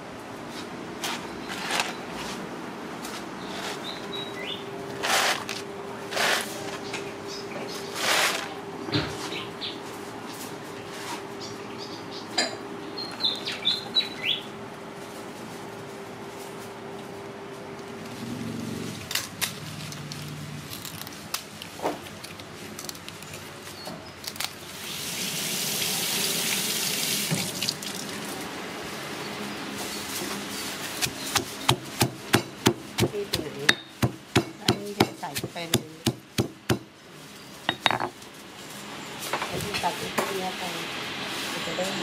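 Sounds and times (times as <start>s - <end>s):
pestle pounding in stone mortar: 31.0s - 36.9s.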